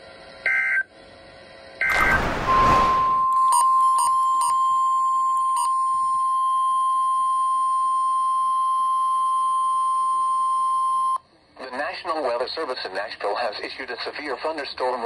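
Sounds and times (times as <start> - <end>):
long steady alarm tone: 1.9 - 11.2.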